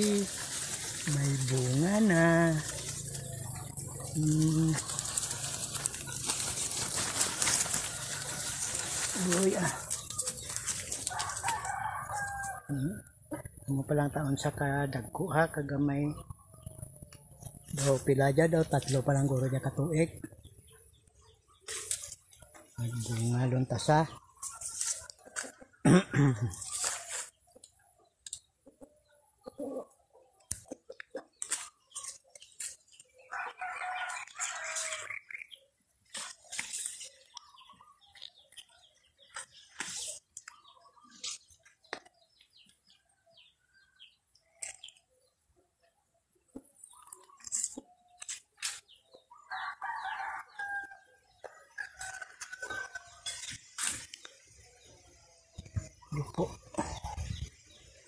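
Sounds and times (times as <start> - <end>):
close rustles and clicks: 0.0 - 11.7
leaves rustling: 0.0 - 12.7, 17.4 - 20.1, 21.6 - 25.6, 26.3 - 27.4, 31.4 - 41.6
chickens and doves calling: 0.0 - 13.6, 16.1 - 58.0
rooster crowing: 7.5 - 10.4, 11.0 - 12.8, 33.3 - 35.2, 49.4 - 53.1.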